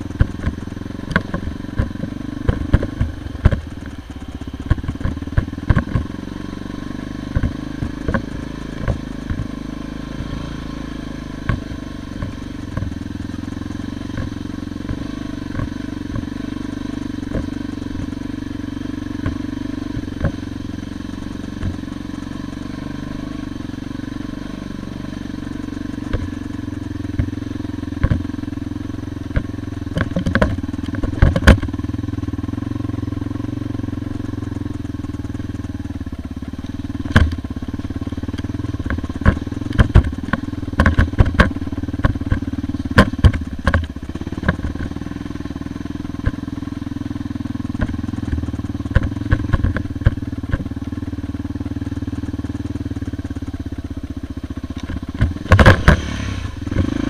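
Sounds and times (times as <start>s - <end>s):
knocks and clatter over stones: 0.0s - 6.1s, 29.3s - 31.8s, 36.4s - 45.0s, 47.7s - 51.1s, 54.7s - 57.0s
motorcycle engine running: 0.0s - 57.0s.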